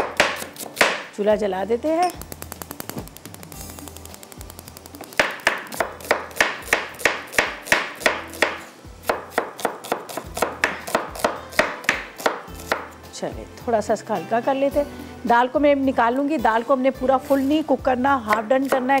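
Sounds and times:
knife chopping on cutting board: 0:00.0 - 0:01.1, 0:05.1 - 0:12.9, 0:18.3 - 0:19.0.

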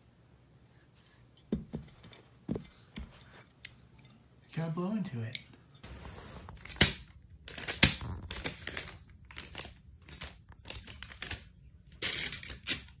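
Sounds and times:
paper crinkling and rustling: 0:07.4 - 0:13.0.

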